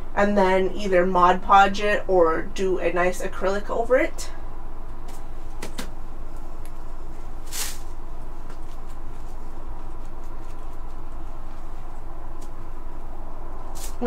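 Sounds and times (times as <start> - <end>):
steady low hum: 0.0 - 14.0
short sharp rustle: 7.4 - 8.0, 13.7 - 14.0.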